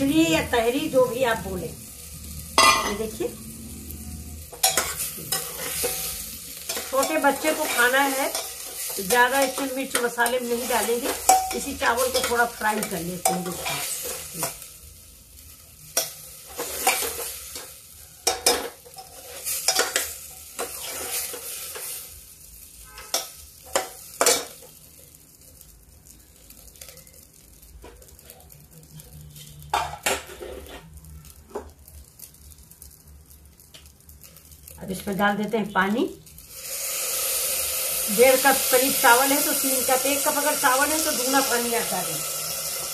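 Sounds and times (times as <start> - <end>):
faint sizzle: 0.0 - 42.9
metal spoon scraping a pot: 18.2 - 22.0.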